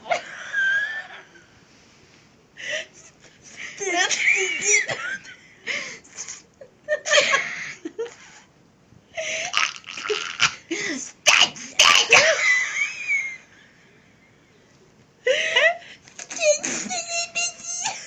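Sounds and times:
women laughing hysterically: 0.0 - 1.5, 3.7 - 6.0, 6.6 - 8.4, 12.1 - 13.7, 15.3 - 18.0.

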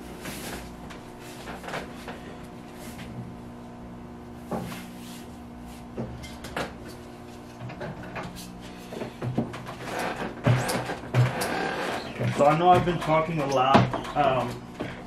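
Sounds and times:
steady hum: 0.0 - 15.0
knocks and clacks of printing press: 9.1 - 15.0.

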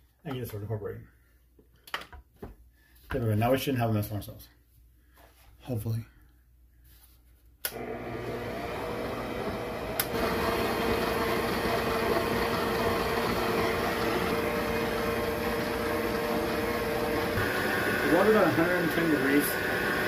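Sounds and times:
mixer click: 7.6 - 8.1, 9.9 - 13.8
stand mixer motor humming: 7.7 - 20.0.

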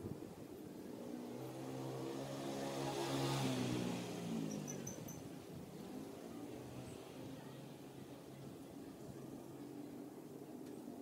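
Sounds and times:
vehicle driving past: 0.9 - 5.0.

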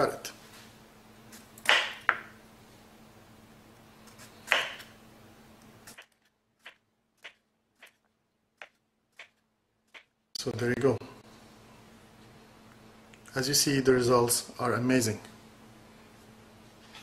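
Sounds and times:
knife chopping on cutting board: 1.6 - 2.3, 4.5 - 4.9.

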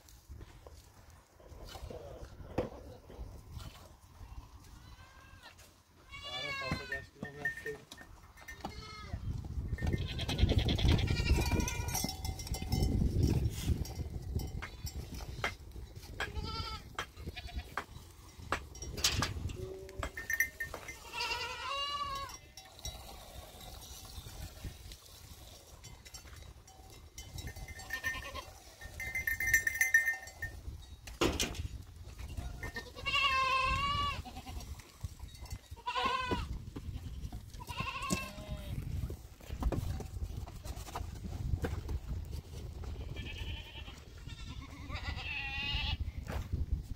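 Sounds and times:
goats bleating: 4.7 - 7.1, 9.9 - 12.0, 16.2 - 17.8, 20.9 - 22.4, 32.6 - 34.7, 35.8 - 38.8, 43.0 - 46.0
clicks and shuffling from herd: 36.8 - 42.7.

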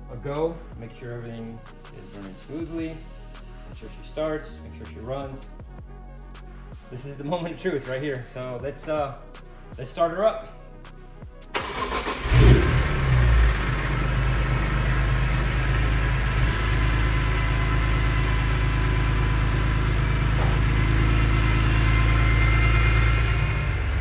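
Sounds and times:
car engine revving and idling: 11.6 - 24.0.

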